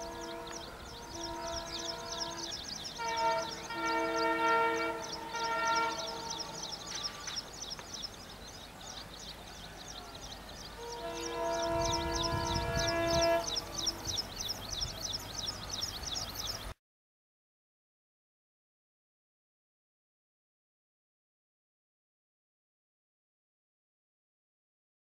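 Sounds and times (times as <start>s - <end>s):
diesel locomotive horn blasts: 0.0s - 7.4s, 10.7s - 15.0s.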